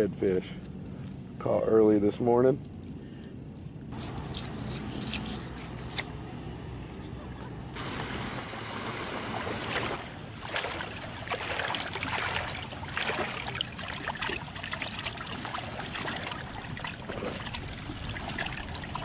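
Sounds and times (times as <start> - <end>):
water splashing and sloshing: 7.4 - 19.0.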